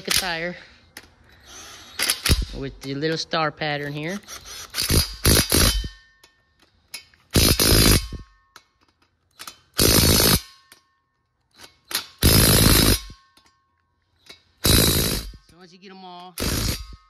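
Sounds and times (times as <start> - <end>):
impact wrench hammering: 1.8 - 3.2, 4.1 - 10.9, 11.5 - 13.6, 14.2 - 15.5, 16.3 - 17.0.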